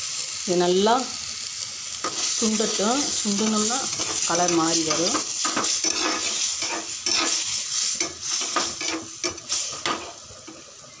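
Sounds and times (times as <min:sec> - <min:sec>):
gravy sizzling: 0:00.0 - 0:11.0
metal ladle scraping pot: 0:05.0 - 0:07.4.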